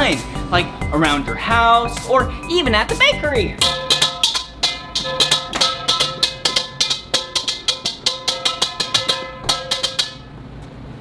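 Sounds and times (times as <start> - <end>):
metal bowl drummed with brush: 3.5 - 10.4.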